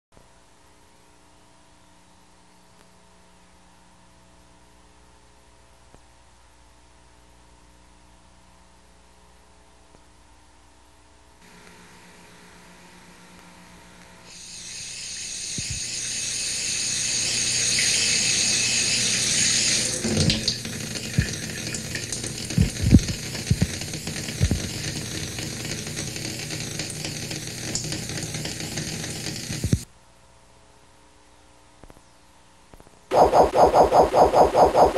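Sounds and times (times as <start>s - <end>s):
water running: 14.3s - 29.8s.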